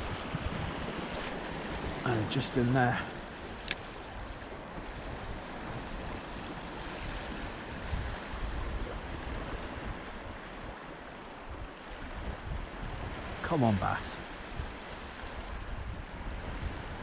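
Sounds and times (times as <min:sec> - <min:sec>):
small waves washing: 0:00.0 - 0:17.0
wind buffeting microphone: 0:00.0 - 0:17.0.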